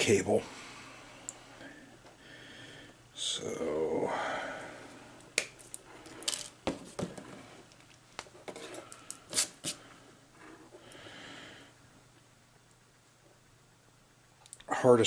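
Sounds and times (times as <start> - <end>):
fingers rustling cable: 5.4 - 9.8.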